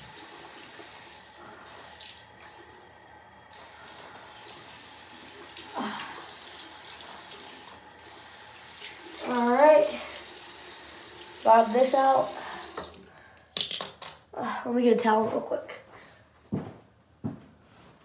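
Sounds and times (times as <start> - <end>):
faucet running into sink: 0.0 - 13.0.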